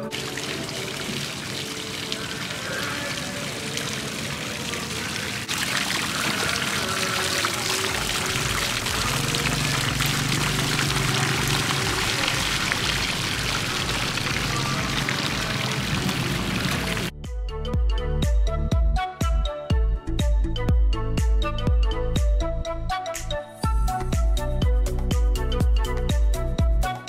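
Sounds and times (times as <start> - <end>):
fountain water splashing: 0.0 - 17.1.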